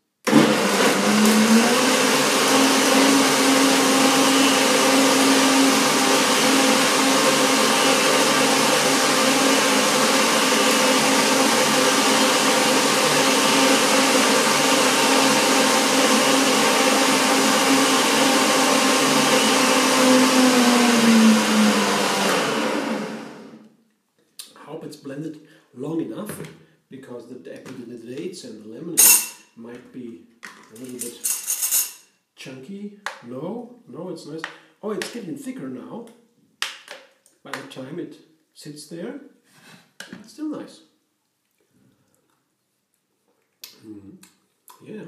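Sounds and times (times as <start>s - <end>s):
blender motor running: 0.3s - 23.6s.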